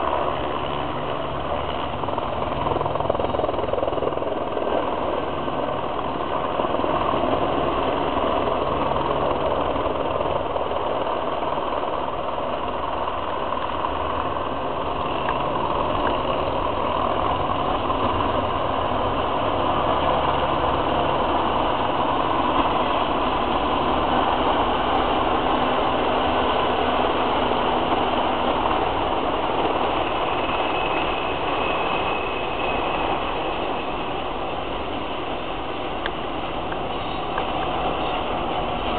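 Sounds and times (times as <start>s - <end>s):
freight train rumbling: 15.0s - 38.9s
faint high squeal: 30.0s - 34.3s, 36.8s - 38.8s.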